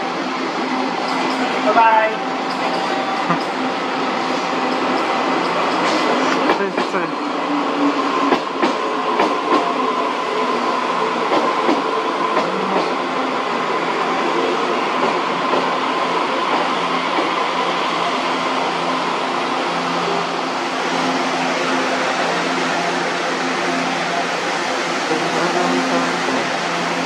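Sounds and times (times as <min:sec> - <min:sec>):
electric train rolling: 0:00.0 - 0:27.0.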